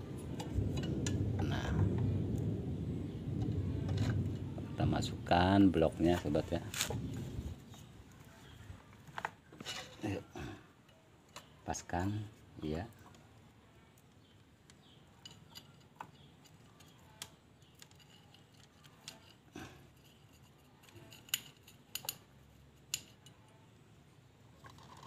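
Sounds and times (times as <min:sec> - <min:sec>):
faint metallic clicks and clinks: 0:07.7 - 0:12.0, 0:12.8 - 0:23.8.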